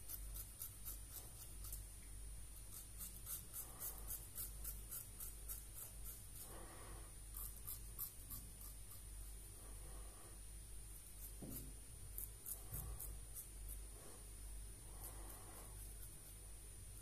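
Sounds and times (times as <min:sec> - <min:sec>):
razor scraping stubble: 0:00.0 - 0:01.9, 0:02.6 - 0:09.3, 0:11.0 - 0:14.0, 0:15.0 - 0:16.4.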